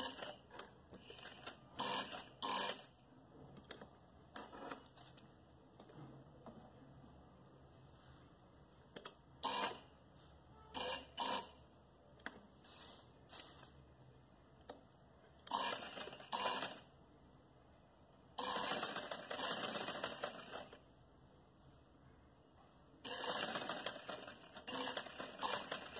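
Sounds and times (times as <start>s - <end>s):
sewing machine stitching: 0.0s - 2.9s, 15.5s - 16.9s, 18.4s - 20.8s, 23.1s - 25.9s.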